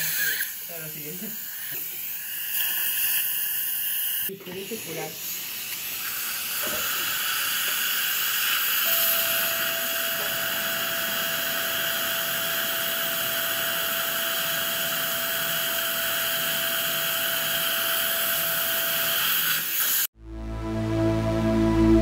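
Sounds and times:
suction hissing: 0.0 - 8.9
drill motor whine: 6.4 - 20.1.

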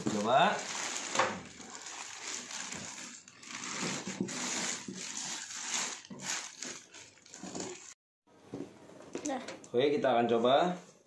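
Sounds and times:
plastic wrapping crinkling: 0.0 - 8.0.

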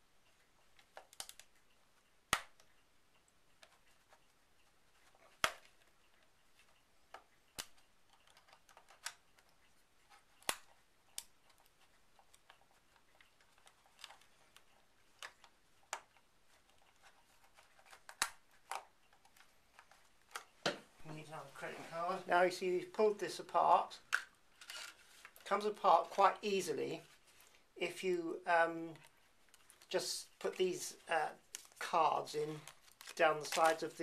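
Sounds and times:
plastic cards clicking on plastic: 0.8 - 1.6, 2.3 - 2.7, 5.0 - 20.8, 24.0 - 26.2, 31.4 - 31.8, 32.5 - 34.0.

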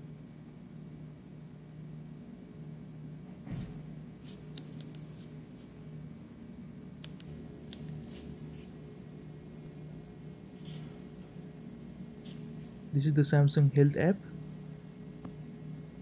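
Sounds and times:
steady low hum: 0.0 - 16.0
smartwatch clicks: 7.0 - 8.0.

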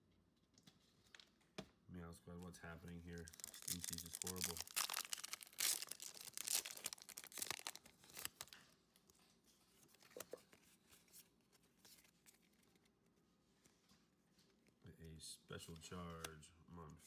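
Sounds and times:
foil wrapper crinkling: 3.0 - 8.7.

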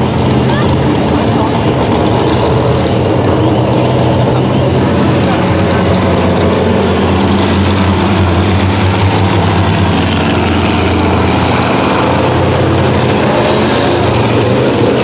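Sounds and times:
race car engines running: 0.0 - 15.0.

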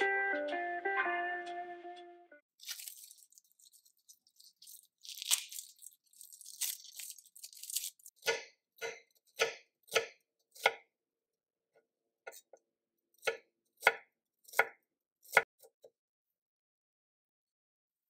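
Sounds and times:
papery skin peeled crackling: 2.5 - 8.2.

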